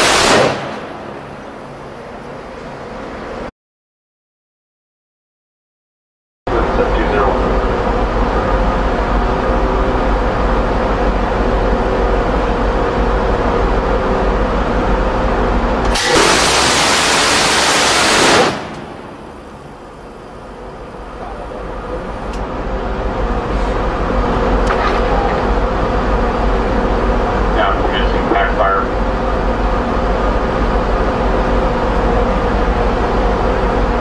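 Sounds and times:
gatling gun firing burst: 0.0s - 0.9s, 15.9s - 18.8s
steady mechanical hum: 0.0s - 3.5s, 6.5s - 34.0s.

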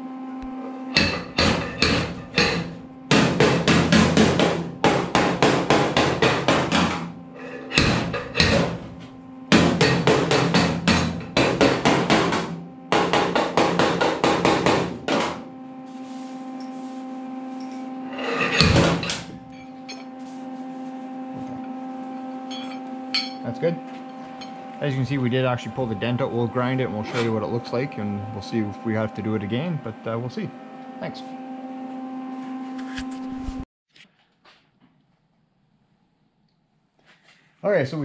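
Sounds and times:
steady low hum: 0.0s - 33.6s
hammer tapping on sheet steel: 1.0s - 7.1s, 9.5s - 15.4s.

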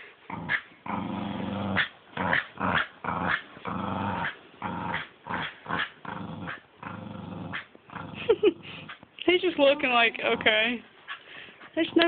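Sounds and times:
dog play-growling: 0.2s - 9.1s, 9.8s - 12.0s.

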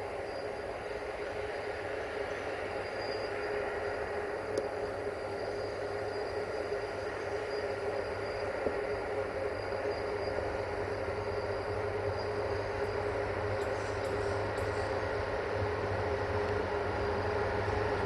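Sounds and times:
train running with steady hum: 0.0s - 18.0s.

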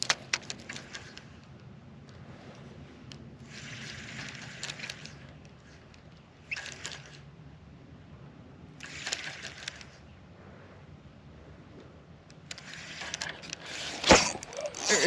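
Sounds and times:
fishing reel whirring ticks: 0.0s - 7.3s, 8.8s - 10.0s, 12.2s - 15.0s.

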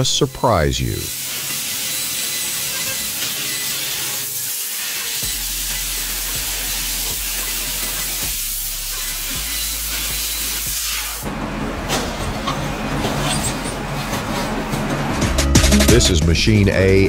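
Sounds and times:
hiss of gas jet cutting metal: 0.9s - 11.2s.

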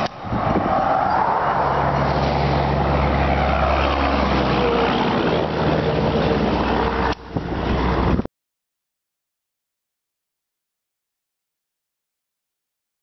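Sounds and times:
engine hum: 0.0s - 8.3s
road noise rushing: 0.0s - 8.3s.

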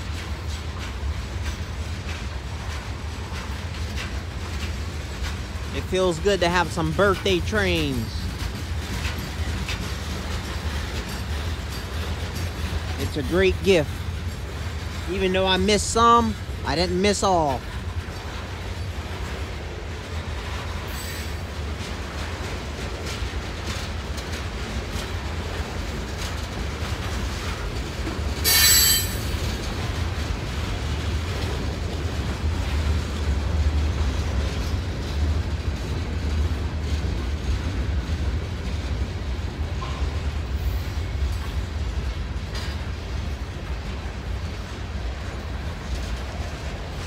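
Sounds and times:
freight cars rolling with clicking: 0.0s - 47.0s
high-pitched wheel squeal: 28.5s - 29.2s.

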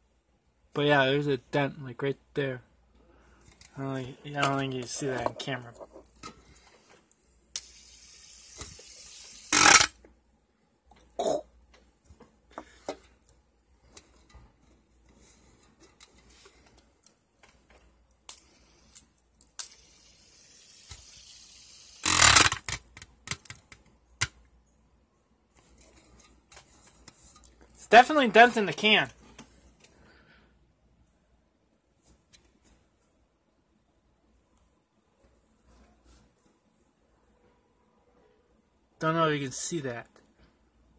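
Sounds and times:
fidget spinner and can clicking: 7.5s - 10.0s, 18.3s - 24.4s.

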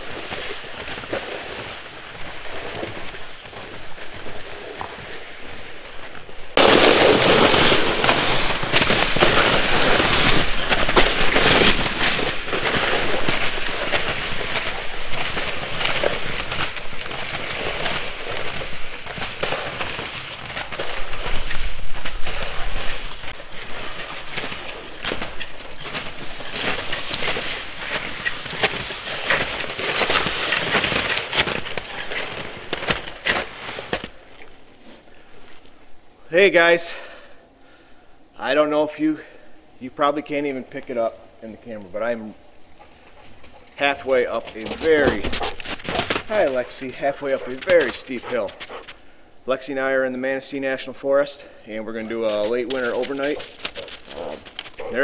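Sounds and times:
plastic sled scraping snow: 0.0s - 34.2s, 43.0s - 49.0s, 51.9s - 55.0s
snowshoes crunching snow: 0.0s - 34.7s, 43.0s - 49.0s, 51.9s - 55.0s.

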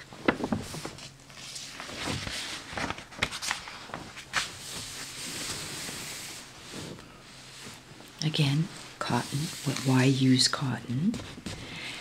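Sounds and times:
magazine pages turning: 0.2s - 5.0s
hand sliding over paper: 1.4s - 7.9s, 8.7s - 10.0s.

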